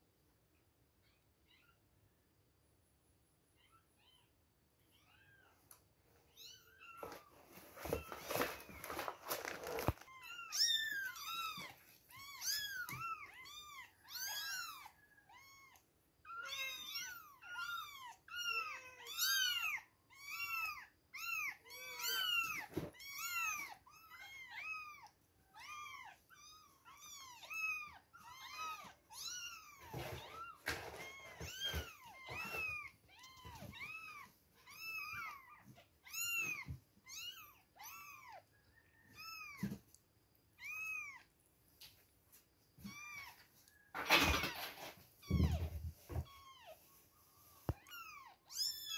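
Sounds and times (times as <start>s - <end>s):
soft rustles: 6.8s - 13.5s.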